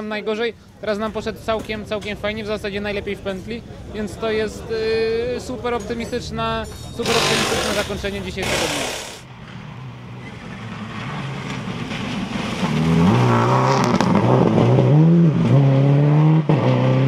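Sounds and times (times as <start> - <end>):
rally car engine passing: 7.1 - 17.0.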